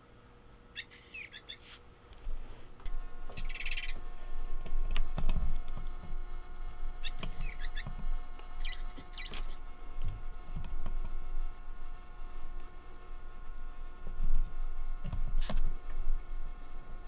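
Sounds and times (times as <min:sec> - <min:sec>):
toy chirping electronically: 0:00.8 - 0:01.6, 0:07.0 - 0:07.8, 0:08.6 - 0:09.6.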